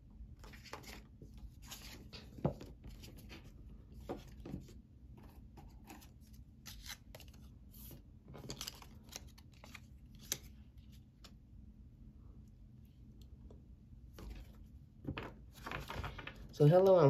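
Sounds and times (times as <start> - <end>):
cards being shuffled: 5.6 - 11.4.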